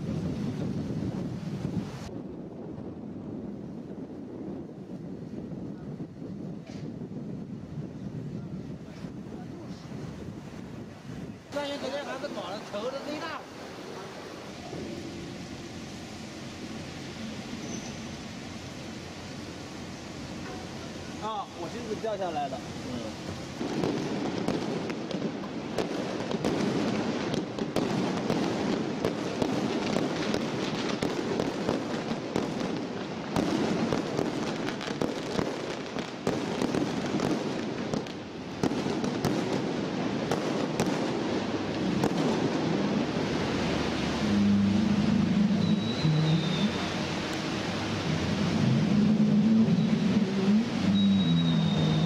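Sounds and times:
firecrackers crackling: 8.8 - 52.0
low tone stepping in pitch: 44.3 - 46.8.

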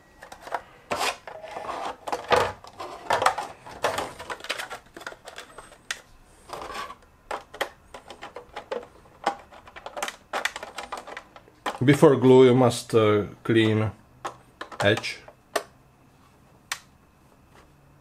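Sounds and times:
plastic clicking and scraping: 0.2 - 11.9.

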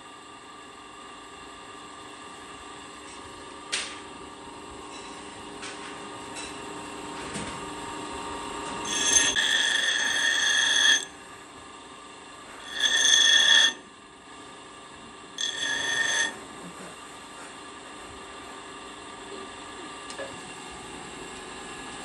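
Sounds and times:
bench grinder running: 8.6 - 11.3, 12.5 - 13.9, 15.3 - 16.8
high-pitched grinding screech: 8.8 - 11.2, 12.6 - 13.8, 15.4 - 16.4.

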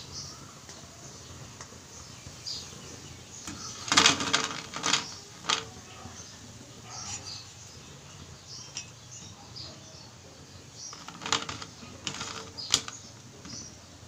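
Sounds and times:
frying oil sizzling: 0.0 - 14.0
wire strainer clinking on metal: 3.5 - 10.0.

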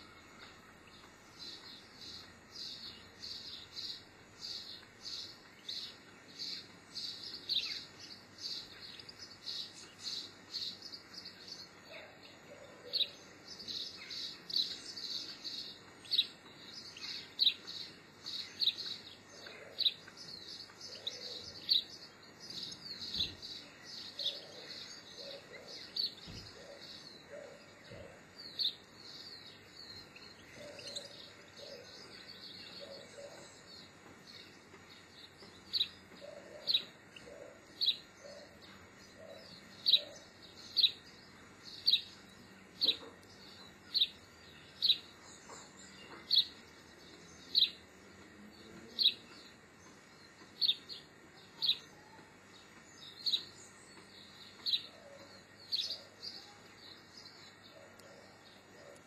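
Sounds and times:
songbirds chirping: 0.0 - 59.0.

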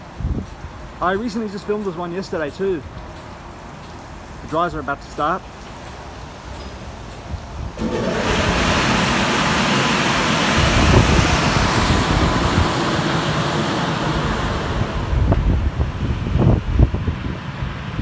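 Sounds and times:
car wash blowers rushing air: 6.1 - 18.0.

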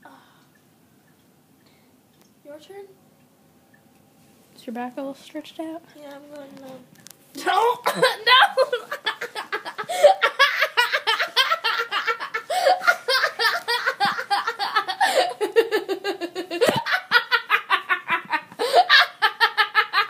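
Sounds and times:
girls laughing: 7.5 - 20.0.

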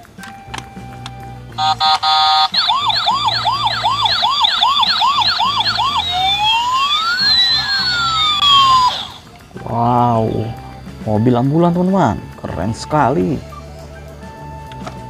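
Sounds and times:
toy siren beeping and wailing: 1.6 - 9.3.

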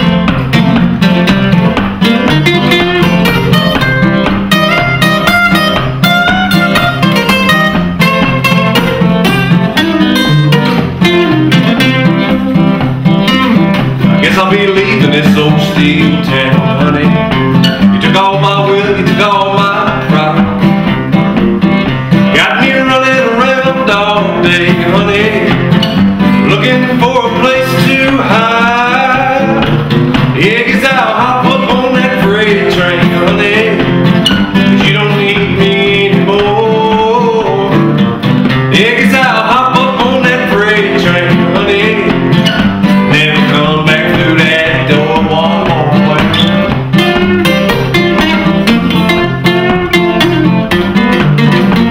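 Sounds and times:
acoustic guitars playing country blues: 0.0 - 51.9
man singing: 14.0 - 51.9.

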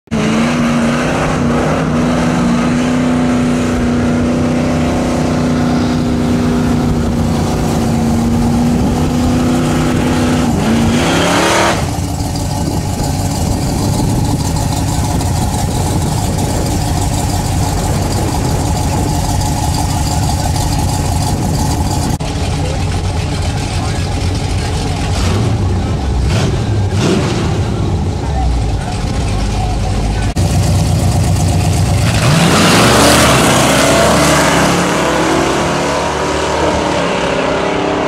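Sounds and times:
vee eight engine revving high: 0.1 - 38.0
drag car engine idling: 11.8 - 27.0, 27.6 - 32.4.

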